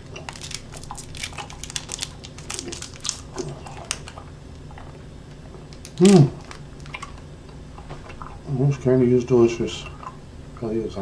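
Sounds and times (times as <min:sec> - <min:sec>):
chewing and mouth sounds: 0:00.1 - 0:08.5
candy wrapper crinkling: 0:00.2 - 0:05.0, 0:05.6 - 0:07.2.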